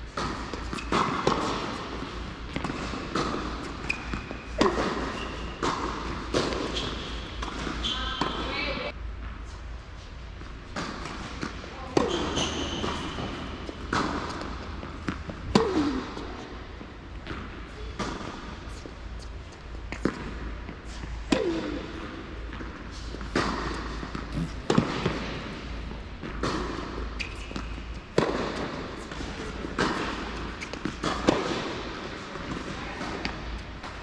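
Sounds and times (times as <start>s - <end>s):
tennis racket strikes: 0.1s - 8.3s
tennis ball bouncing: 0.1s - 8.9s, 10.4s - 34.0s.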